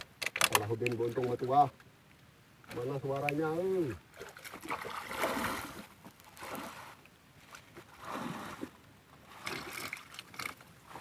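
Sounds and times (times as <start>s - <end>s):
water sloshing: 3.9s - 11.0s.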